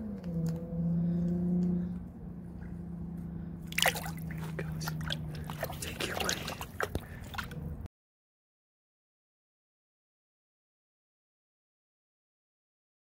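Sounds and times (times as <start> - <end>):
low steady hum: 0.0 - 7.9
water splashing and sloshing: 2.6 - 7.9
water dripping: 3.6 - 7.7.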